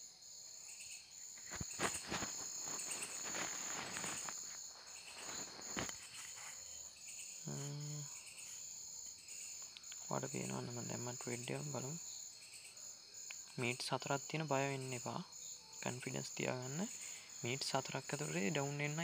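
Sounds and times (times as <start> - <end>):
crickets chirping: 0.0 - 19.0
man's voice murmuring: 7.4 - 8.1.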